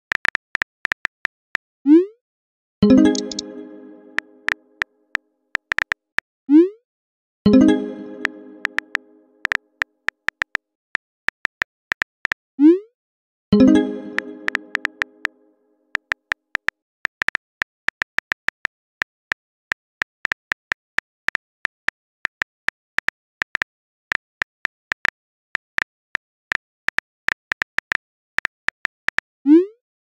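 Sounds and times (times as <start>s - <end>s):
phone keyboard clicks: 3.0s - 3.5s.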